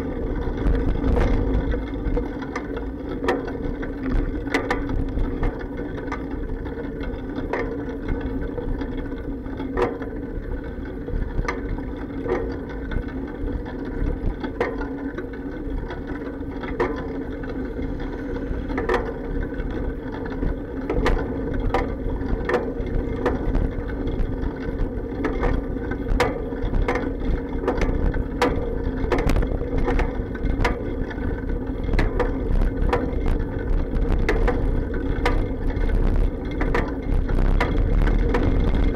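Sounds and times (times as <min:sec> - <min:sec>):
bicycle rolling over pavement: 0:00.0 - 0:38.9
clacks and knocks from bike frame: 0:00.0 - 0:38.9.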